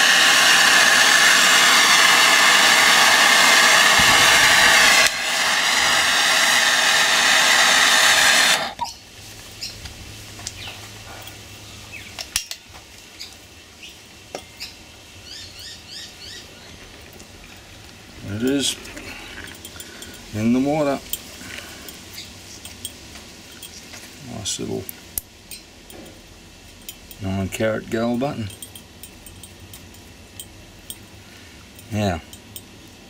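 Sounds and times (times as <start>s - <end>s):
torch flame hissing: 0.0s - 10.5s, 17.8s - 25.4s
bird chirps: 8.8s - 9.0s, 13.2s - 16.8s.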